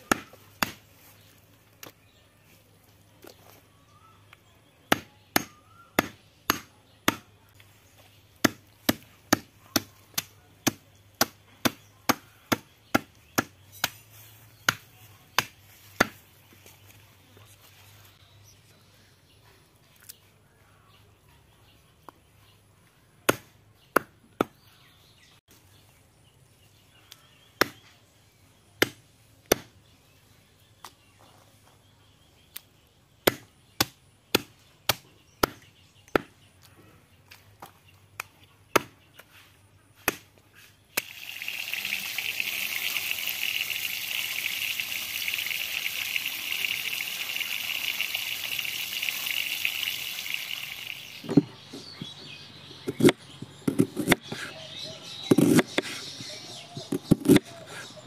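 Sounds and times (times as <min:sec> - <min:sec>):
heavy knife chopping meat on wood: 0:04.9 - 0:07.3.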